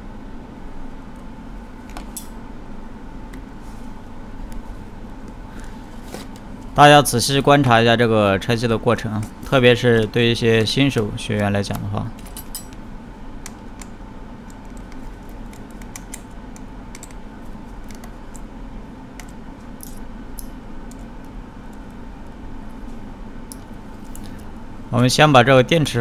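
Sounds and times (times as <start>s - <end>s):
steady low hum: 0.0s - 26.0s
screwdriver light clicks: 13.4s - 17.2s.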